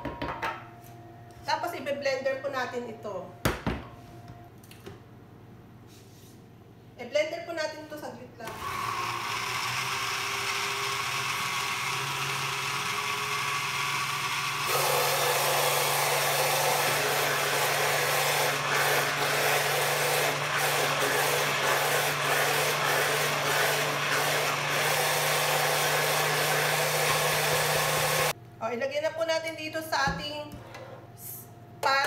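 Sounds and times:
blender motor running: 8.5 - 28.4.

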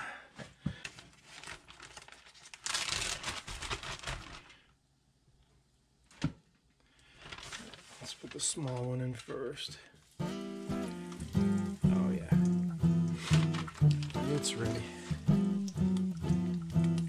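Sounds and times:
plastic bag crinkling: 0.8 - 4.7, 7.0 - 10.2, 13.0 - 15.2.

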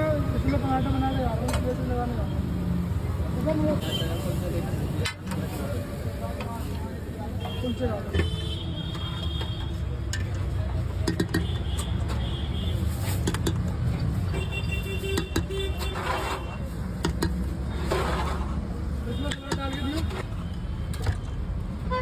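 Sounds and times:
traffic rumble: 0.0 - 22.0.

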